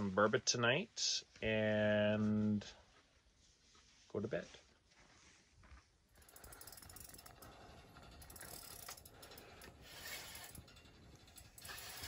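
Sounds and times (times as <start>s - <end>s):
fishing reel clicking: 6.2s - 12.0s.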